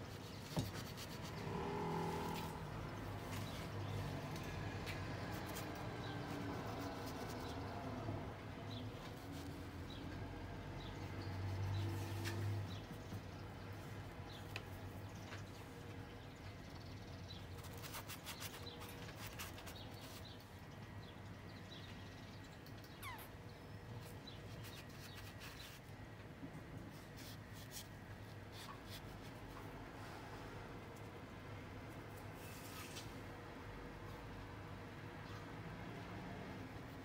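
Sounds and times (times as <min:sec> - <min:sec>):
paintbrush scratching on paper: 0:00.0 - 0:02.6, 0:05.2 - 0:08.0.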